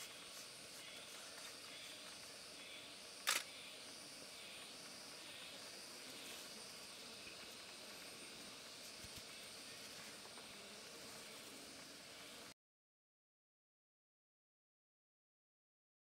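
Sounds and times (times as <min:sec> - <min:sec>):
faint outdoor ambience with hiss: 0:00.0 - 0:12.6
sharp click: 0:03.2 - 0:03.5.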